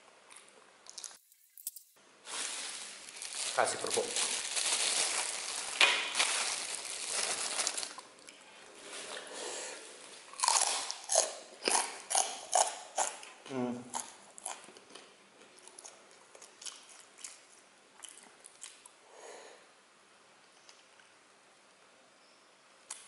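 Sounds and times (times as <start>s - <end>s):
crackers crunching: 0.3s - 9.3s, 10.0s - 18.9s.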